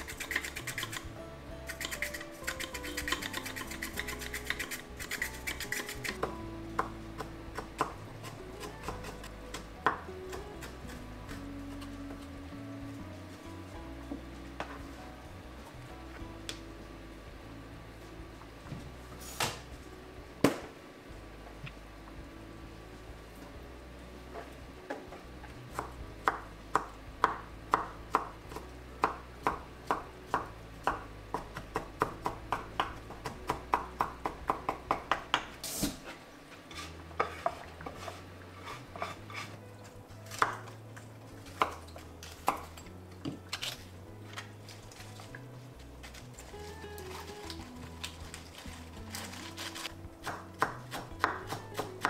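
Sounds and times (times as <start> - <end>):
knife chopping on wooden board: 40.3 - 40.7, 50.2 - 52.0.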